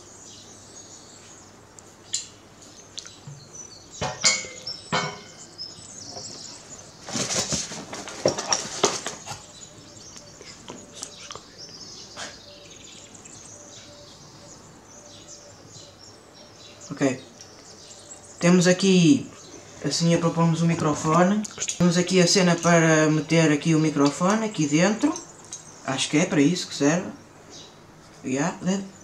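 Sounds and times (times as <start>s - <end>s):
rustling and scraping foam: 7.0s - 9.5s.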